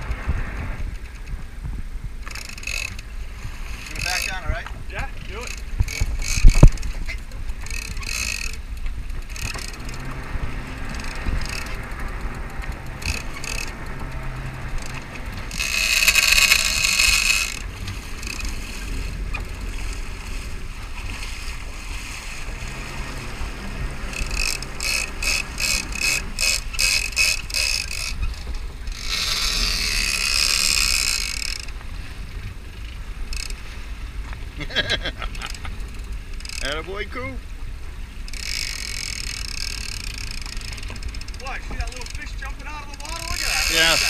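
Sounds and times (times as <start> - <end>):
steady low rumble: 0.0 - 44.0.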